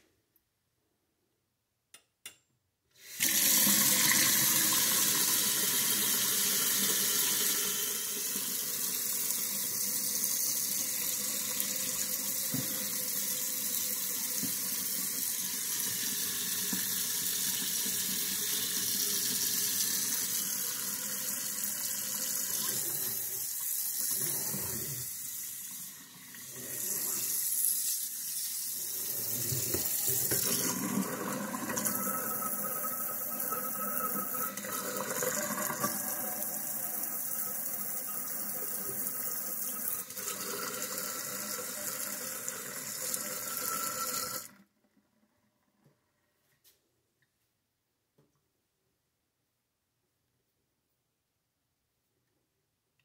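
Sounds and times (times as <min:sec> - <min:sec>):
faucet water running into sink: 0:03.0 - 0:44.6.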